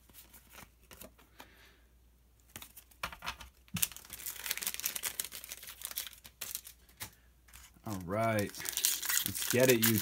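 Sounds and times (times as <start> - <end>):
foil wrapper crinkling: 3.8 - 10.0.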